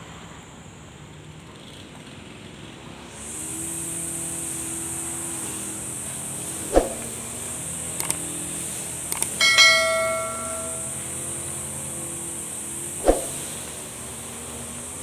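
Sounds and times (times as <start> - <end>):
constant high whine: 9.1 - 11.2
bright bell ding: 9.4 - 11.0.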